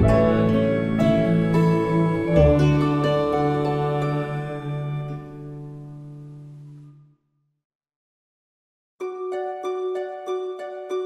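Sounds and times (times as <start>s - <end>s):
plucked-note music: 0.0s - 7.0s, 9.0s - 11.0s.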